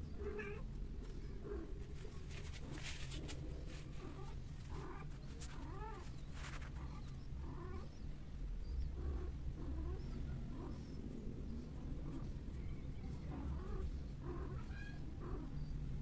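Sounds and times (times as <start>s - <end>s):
steady low hum: 0.0s - 16.0s
cats yowling and meowing: 13.2s - 15.9s.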